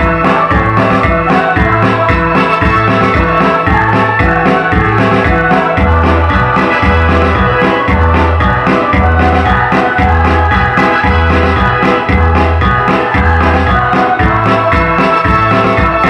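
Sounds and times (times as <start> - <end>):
electronic keyboard organ accompaniment: 0.0 - 16.0
women's choir singing: 0.0 - 16.0.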